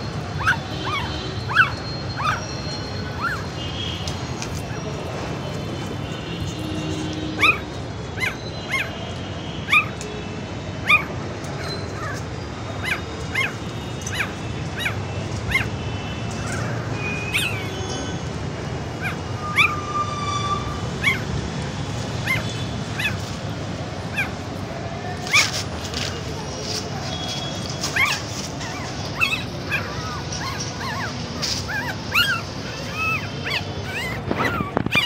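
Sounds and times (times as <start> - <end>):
puppies yelping and whimpering: 0.0 - 3.6, 7.3 - 9.0, 9.7 - 10.1, 10.8 - 17.9, 18.9 - 21.5, 22.2 - 23.4, 24.0 - 35.0.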